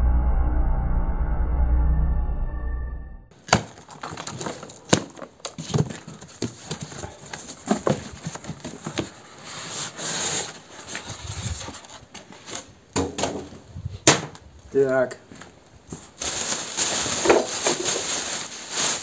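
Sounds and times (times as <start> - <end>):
cardboard flaps rustling: 3.3 - 14.4, 15.3 - 19.0.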